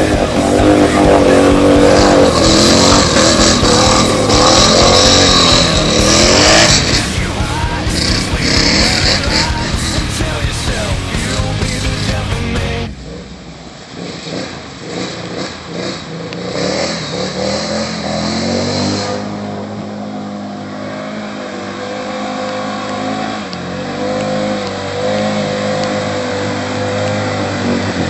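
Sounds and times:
tyres splashing water: 0.0s - 10.9s
atv engine revving: 0.0s - 28.0s.

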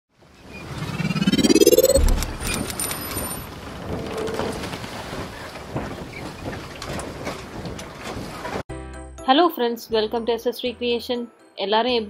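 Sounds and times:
rising swoosh: 0.5s - 3.0s
thin high tone: 0.8s - 3.3s.

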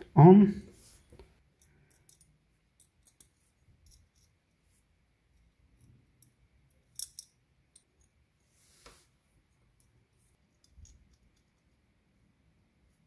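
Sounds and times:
small metal parts clicking: 1.6s - 4.4s, 5.7s - 8.2s.

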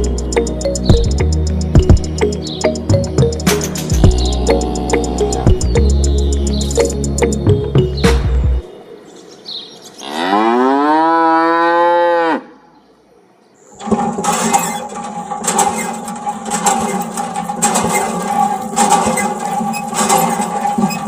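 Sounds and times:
cow mooing: 4.4s - 5.5s, 10.0s - 12.6s
mechanical whirr with rapid clicking: 13.7s - 21.0s.

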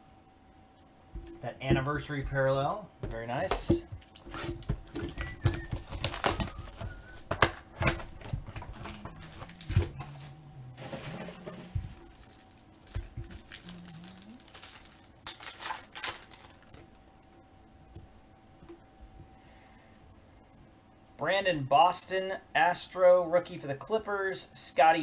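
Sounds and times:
foil pack tearing: 4.0s - 7.6s, 8.2s - 16.9s
plastic wrappers crinkling: 4.0s - 17.0s.

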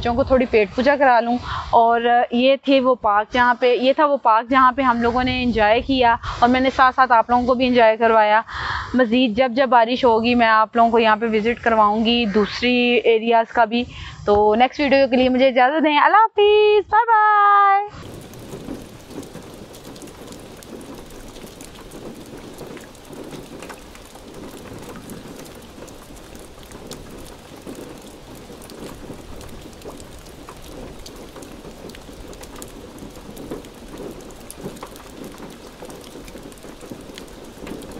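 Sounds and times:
heavy rain falling: 17.9s - 37.9s.

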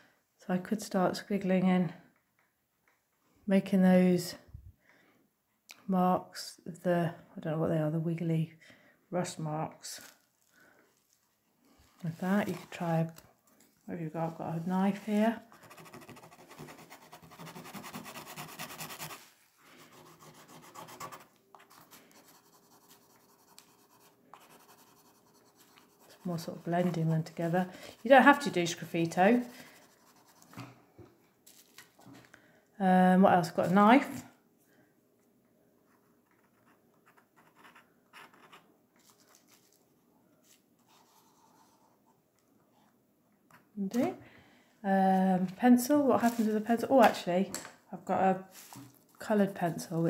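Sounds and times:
knife scratching oil pastel: 14.9s - 28.6s.

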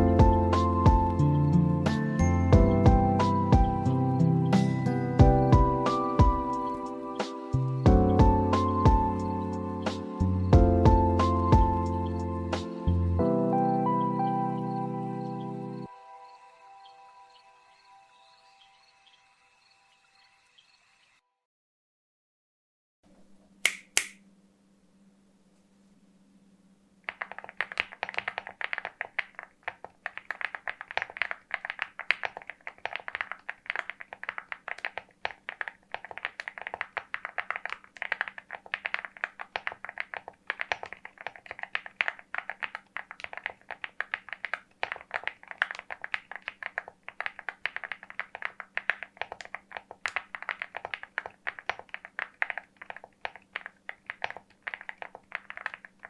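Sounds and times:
mechanical keyboard typing: 27.1s - 56.0s.

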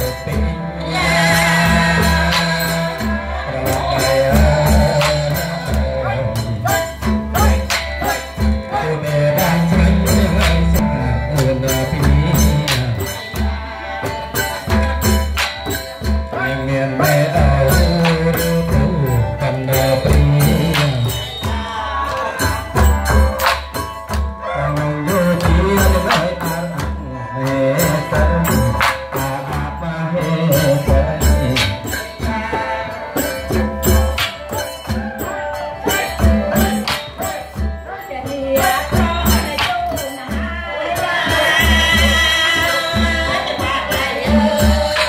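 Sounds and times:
man singing through a microphone: 0.0s - 23.7s, 24.4s - 45.0s
hand drum beat: 0.0s - 45.0s
jingling percussion: 0.0s - 45.0s
small folk ensemble: 0.0s - 45.0s.

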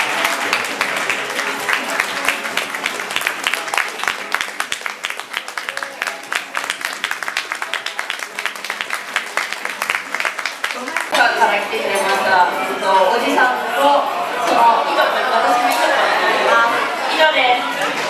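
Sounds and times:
crowd clapping: 0.0s - 11.2s
background music: 0.0s - 18.0s
chatter: 0.0s - 18.0s.

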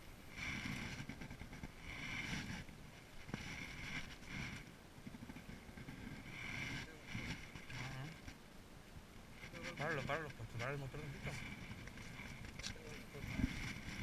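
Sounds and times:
low wind: 0.0s - 14.0s
handling rumble: 9.3s - 14.0s.

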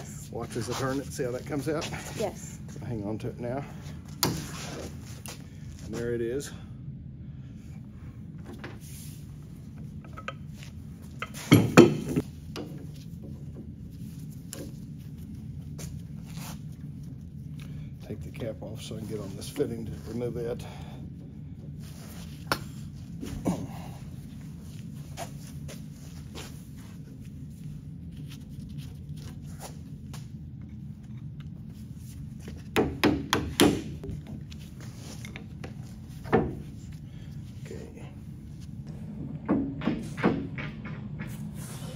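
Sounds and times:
steady low hum: 0.0s - 41.9s.

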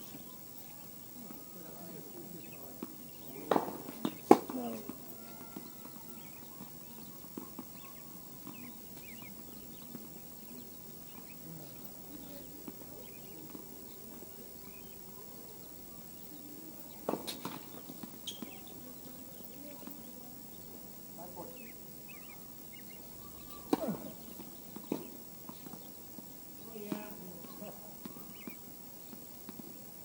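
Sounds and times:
tennis ball knocking: 2.8s - 6.3s.

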